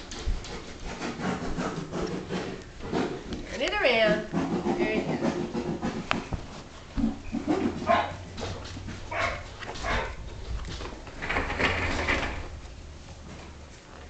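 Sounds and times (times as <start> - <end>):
puppies yipping and barking: 7.1 - 8.2.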